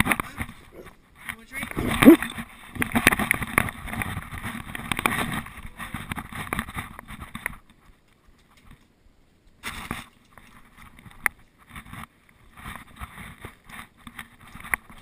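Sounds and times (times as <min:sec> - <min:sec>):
camera housing rubbing and scraping: 0:01.7 - 0:05.5.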